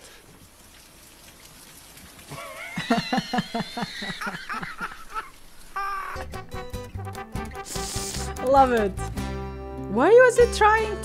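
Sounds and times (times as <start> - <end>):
woman laughing hard: 2.3 - 6.4
music: 6.2 - 11.0.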